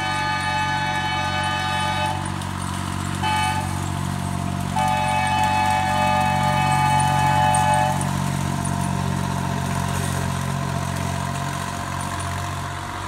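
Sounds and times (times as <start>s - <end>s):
locomotive horn chord: 0.0s - 8.9s
locomotive engine running: 0.0s - 13.0s.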